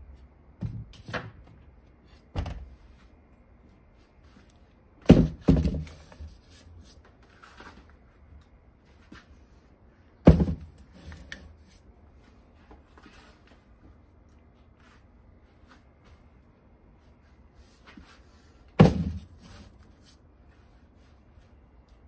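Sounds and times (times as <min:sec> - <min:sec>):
plastic containers knocking on shelf: 0:05.0 - 0:06.0, 0:10.2 - 0:10.8
faint shuffling: 0:11.6 - 0:18.7.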